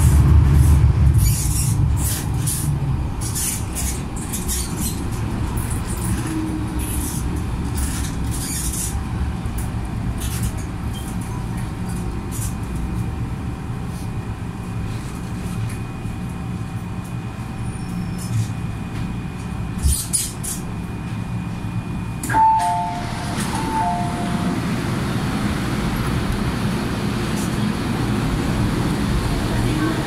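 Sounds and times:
train running gear whining: 0:00.0 - 0:30.0
two-note door chime: 0:22.3 - 0:24.4
platform noise: 0:22.3 - 0:24.9.

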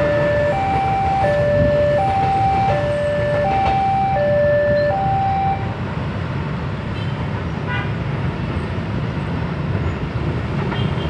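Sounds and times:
level crossing alarm two-tone: 0:00.0 - 0:05.7.

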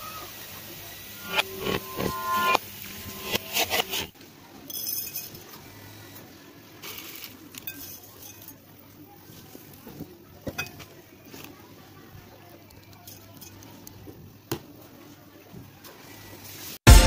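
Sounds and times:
metal spatula scraping wok: 0:01.1 - 0:04.2.

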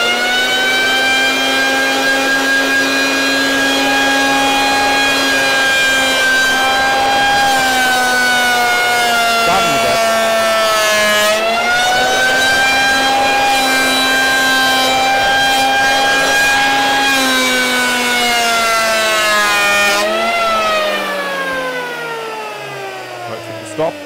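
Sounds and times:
electric hand planer planing wood: 0:00.0 - 0:24.0.

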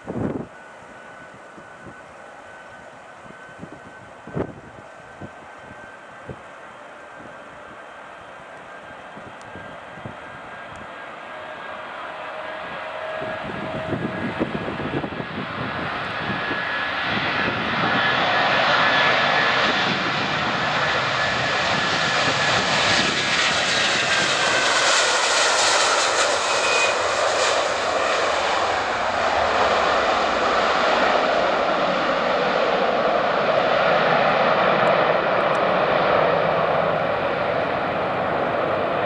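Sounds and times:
jet engines at take-off thrust: 0:00.0 - 0:39.0
thin falling whine: 0:23.7 - 0:30.4.

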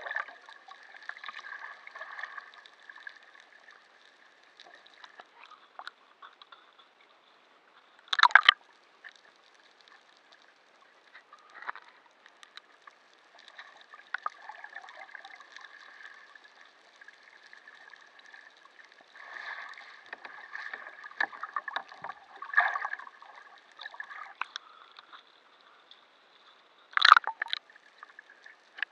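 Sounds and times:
water sloshing and gurgling: 0:00.0 - 0:28.9.

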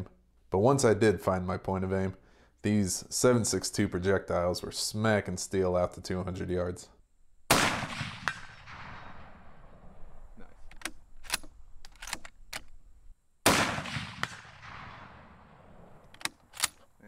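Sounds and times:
rifle shot: 0:07.5 - 0:10.2, 0:13.4 - 0:16.8
metallic rifle bolt clicks: 0:10.6 - 0:12.8, 0:16.0 - 0:16.9.

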